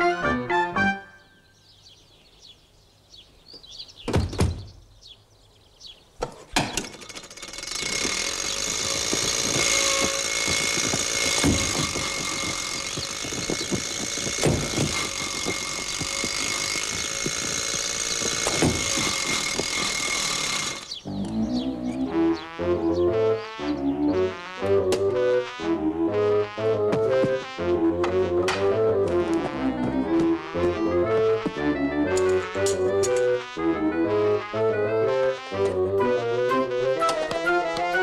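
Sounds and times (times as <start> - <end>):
old car engine rattling: 6.2 - 21.0
knocks and clicks: 6.2 - 21.4.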